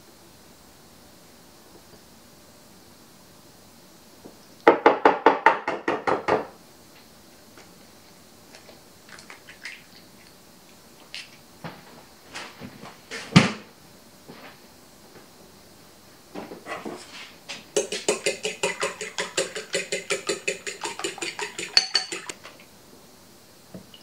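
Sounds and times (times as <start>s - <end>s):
shell clicking on bowl rim: 17.8s - 22.3s
egg cracking: 17.8s - 22.4s
spatula clacking against glass bowl: 17.8s - 22.4s.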